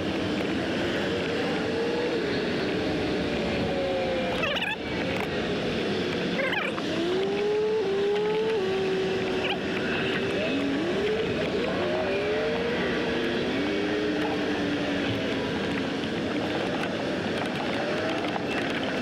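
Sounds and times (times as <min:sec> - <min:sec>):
vehicle engines accelerating: 0:00.0 - 0:19.0.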